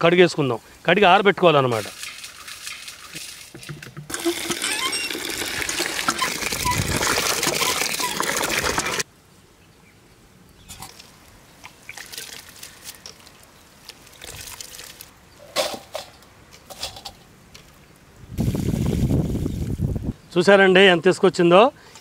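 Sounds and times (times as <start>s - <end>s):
water splashes: 1.6s - 9.1s, 10.8s - 15.1s
water pouring into pot: 4.1s - 9.0s
wet rustling and sloshing: 10.8s - 15.1s.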